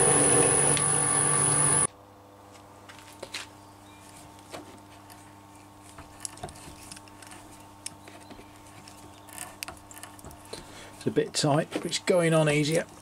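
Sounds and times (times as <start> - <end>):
low steady hum: 0.0 - 13.0
die stock clicks and creaks: 6.1 - 10.6.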